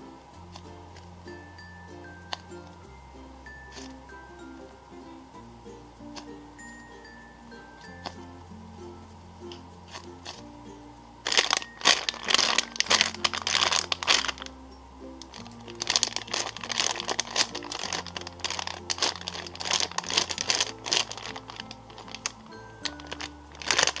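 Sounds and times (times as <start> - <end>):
soft background music: 0.0 - 24.0
plastic bag crinkling: 3.6 - 4.0, 11.2 - 14.5, 15.2 - 24.0.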